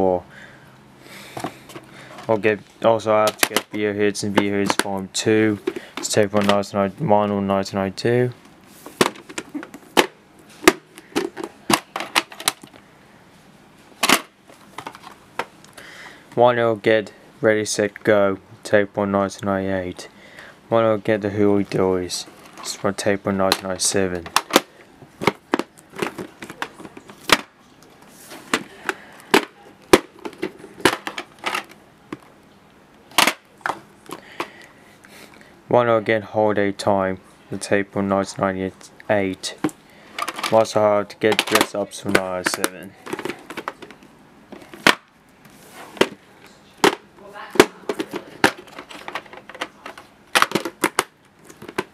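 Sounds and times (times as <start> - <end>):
plastic cases clicking and clacking: 3.2 - 6.6, 8.9 - 12.8, 14.0 - 15.8, 22.4 - 32.3, 33.1 - 34.6, 39.6 - 45.1, 45.9 - 46.2, 46.8 - 51.9.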